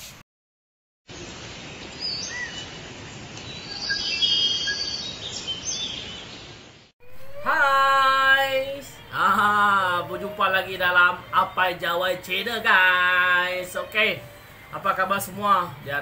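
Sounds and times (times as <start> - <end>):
outdoor background noise: 1.1 - 16.0
bird chirps and calls: 2.0 - 2.7, 3.5 - 6.5.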